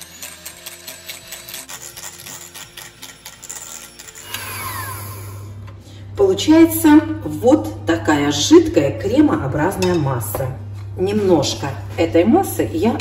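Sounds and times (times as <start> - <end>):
hand mixer beaters scraping glass: 0.0 - 5.5
electric mixer humming: 0.0 - 6.9.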